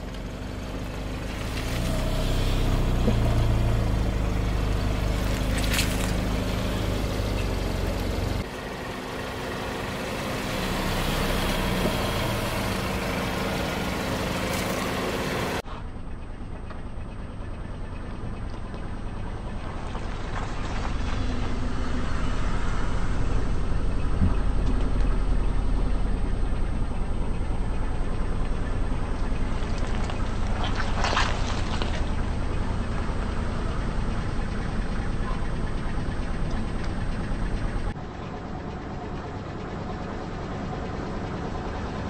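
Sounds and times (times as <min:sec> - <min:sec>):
car engine running at low speed: 0:00.0 - 0:42.0.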